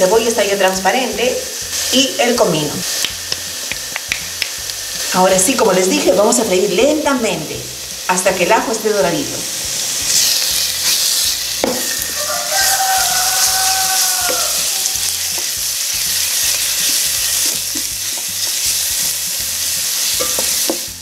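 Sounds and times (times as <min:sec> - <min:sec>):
onion sizzling in hot oil: 0:00.0 - 0:21.0
rooster crowing: 0:11.8 - 0:15.2
wooden spoon stirring: 0:12.0 - 0:19.1.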